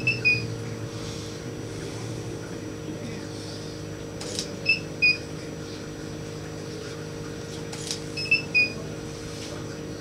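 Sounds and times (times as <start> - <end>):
low electrical hum: 0.0 - 10.0
short electronic beeps: 8.2 - 8.8.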